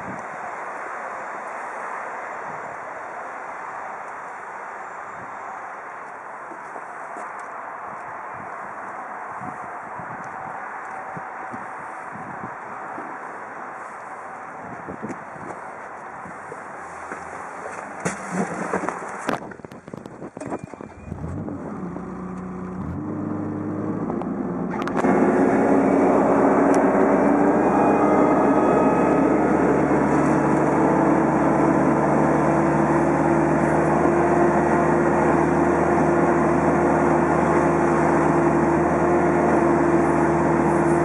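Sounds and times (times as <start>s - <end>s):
forklift engine revving: 20.9s - 41.0s.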